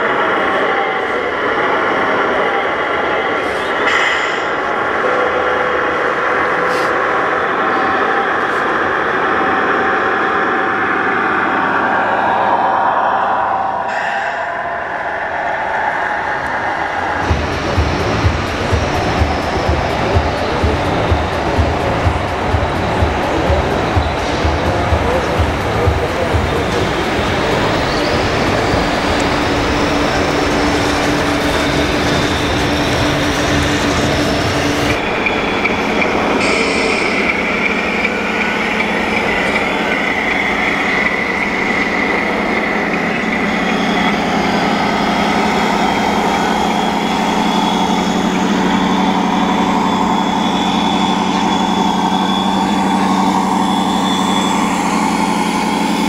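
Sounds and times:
busy hall din: 0:00.0 - 0:56.0
steady hum: 0:01.1 - 0:56.0
model truck rumble: 0:17.2 - 0:56.0.

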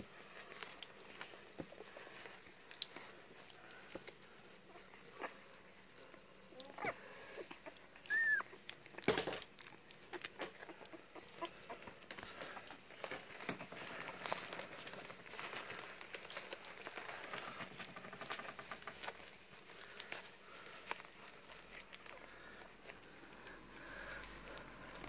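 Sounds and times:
soft rustling and clicking: 0:00.0 - 0:25.0
puppy squealing: 0:06.6 - 0:08.7.

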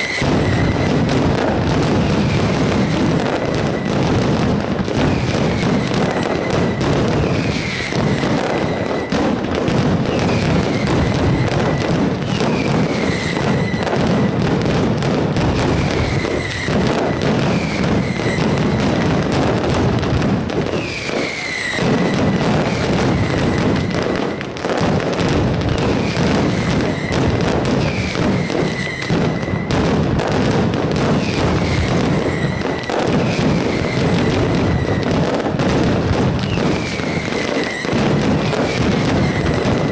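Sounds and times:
firecracker barrage: 0:00.0 - 0:39.9.

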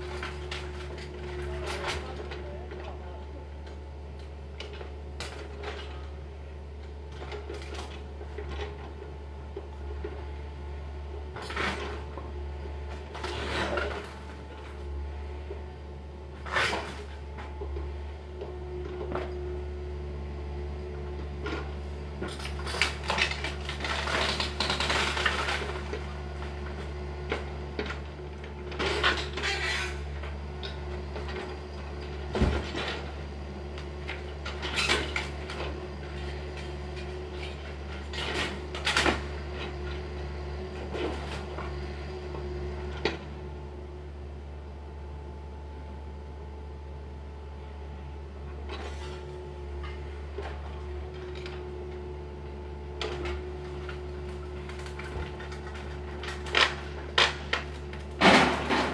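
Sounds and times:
wood and debris crashing: 0:53.2 - 0:58.9.

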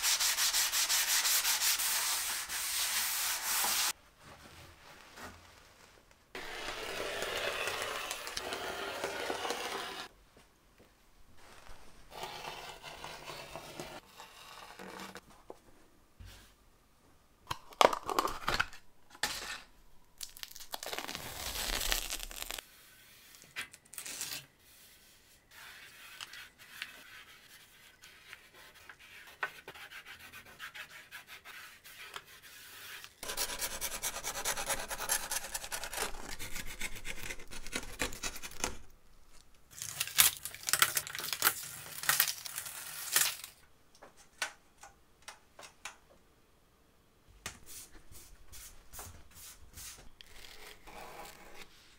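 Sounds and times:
tape rubbed flat: 0:00.0 - 0:04.0, 0:06.4 - 0:10.1, 0:20.8 - 0:38.8, 0:48.5 - 0:51.9
rotary cutter rolling through felt: 0:06.4 - 0:10.1
tape backing peeled off tearing: 0:20.2 - 0:22.6, 0:39.8 - 0:43.6.

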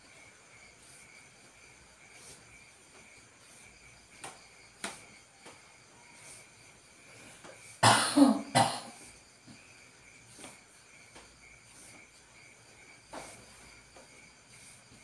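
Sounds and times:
crickets chirring: 0:00.0 - 0:15.0
person coughing: 0:07.8 - 0:09.0.

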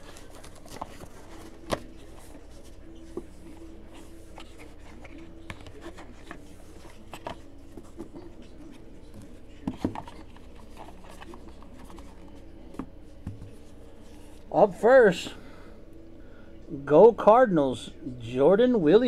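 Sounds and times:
cards and packaging clicking and rustling: 0:00.0 - 0:14.4.

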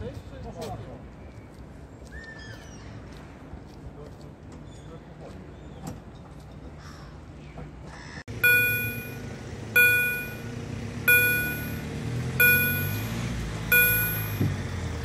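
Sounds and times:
level crossing warning bell: 0:08.3 - 0:14.7
low steady rumble: 0:08.3 - 0:15.0.

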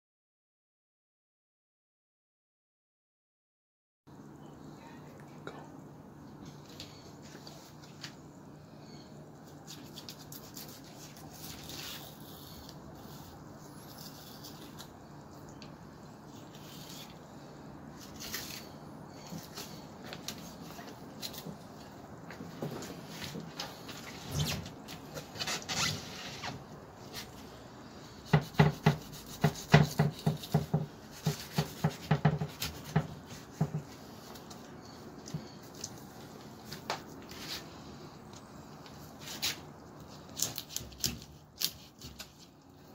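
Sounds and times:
knife scraping fish skin: 0:09.6 - 0:14.9, 0:28.3 - 0:33.4, 0:40.3 - 0:42.5.

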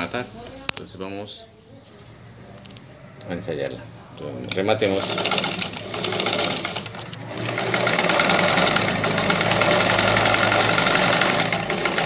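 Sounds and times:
sewing machine stitching: 0:04.5 - 0:12.0.

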